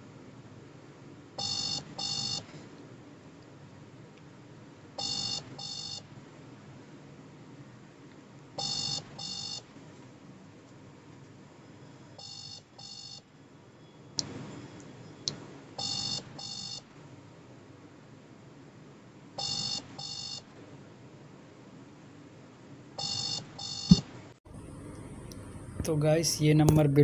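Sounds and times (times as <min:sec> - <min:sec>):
phone ringing tone beeps: 0:01.4 - 0:02.4, 0:05.0 - 0:06.0, 0:08.6 - 0:09.6, 0:12.2 - 0:13.2, 0:15.8 - 0:16.8, 0:19.4 - 0:20.5, 0:23.0 - 0:24.0.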